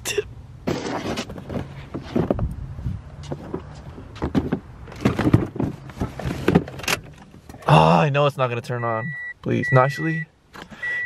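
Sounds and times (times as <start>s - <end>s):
knocks and scrapes in car seat: 0.7s - 2.5s, 3.2s - 7.0s.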